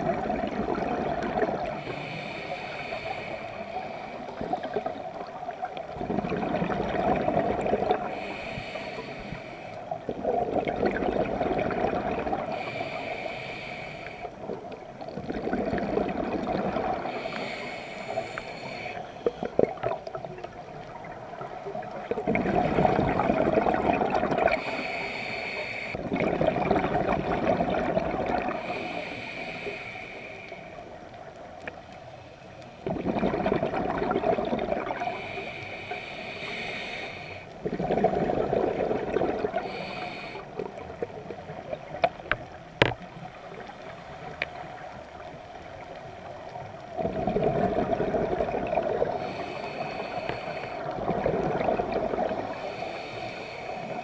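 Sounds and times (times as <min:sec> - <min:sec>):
bubbling exhale underwater: 0:00.0 - 0:02.1, 0:04.3 - 0:08.4, 0:10.0 - 0:12.9, 0:14.5 - 0:17.6, 0:19.2 - 0:24.9, 0:26.0 - 0:28.8, 0:32.8 - 0:35.3, 0:37.6 - 0:42.0, 0:46.9 - 0:52.8
diver inhaling through regulator: 0:01.6 - 0:05.0, 0:07.6 - 0:10.0, 0:11.8 - 0:14.4, 0:16.6 - 0:19.6, 0:22.8 - 0:26.0, 0:28.4 - 0:30.9, 0:34.8 - 0:38.1, 0:39.4 - 0:40.9, 0:49.0 - 0:54.0.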